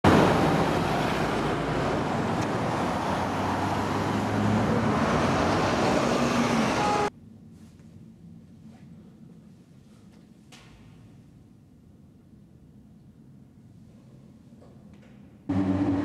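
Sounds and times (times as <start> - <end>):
street traffic noise: 0.0 - 7.1
car engine at low speed: 15.5 - 16.0.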